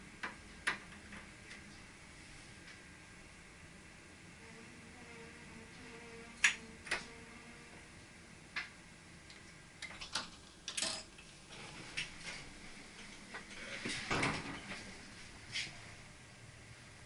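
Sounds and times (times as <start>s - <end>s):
sharp clicks and light knocks: 0.2s - 1.8s.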